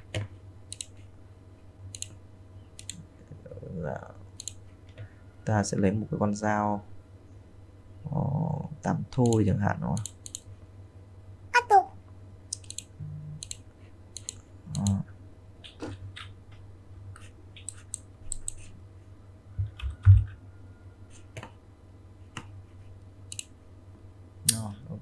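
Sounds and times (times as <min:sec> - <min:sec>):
faint electrical hum: 0:00.0 - 0:25.0
computer mouse clicks: 0:00.1 - 0:01.1, 0:01.9 - 0:02.2, 0:02.8 - 0:03.0, 0:04.4 - 0:05.0, 0:09.2 - 0:10.5, 0:12.5 - 0:13.6, 0:14.2 - 0:15.0, 0:17.2 - 0:18.7, 0:23.3 - 0:23.5.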